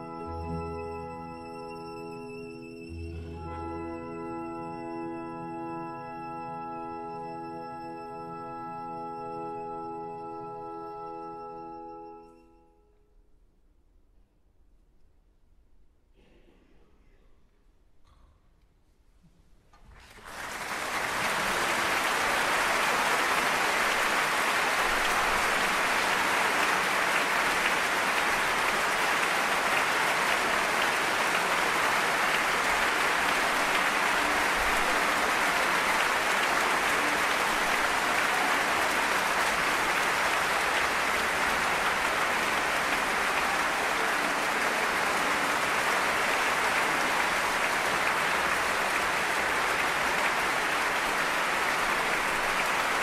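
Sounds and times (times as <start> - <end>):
audience applauding: 19.9 - 53.0.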